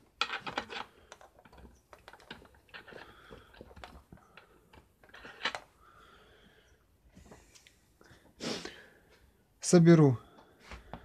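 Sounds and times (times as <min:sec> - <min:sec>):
small metal parts clicking: 0:00.1 - 0:05.7.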